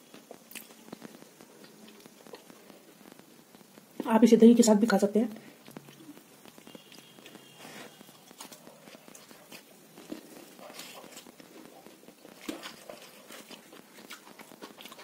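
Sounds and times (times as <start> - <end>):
eating clicks and smacks: 8.3 - 15.0.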